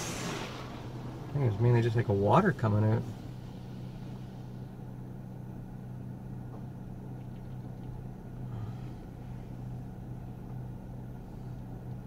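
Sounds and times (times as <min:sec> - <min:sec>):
water spray on windshield: 0:00.0 - 0:04.4
steady low hum: 0:00.0 - 0:12.0.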